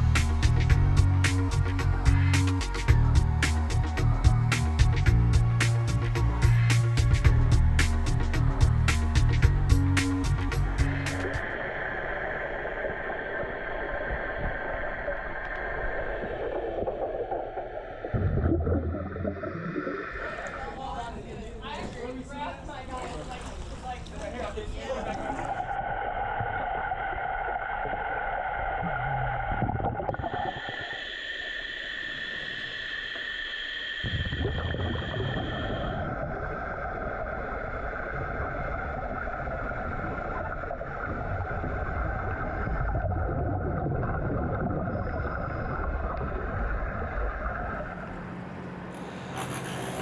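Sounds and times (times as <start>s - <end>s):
muffled underwater rumble: 0.0s - 21.5s, 23.2s - 50.0s
steady humming tones: 10.5s - 50.0s.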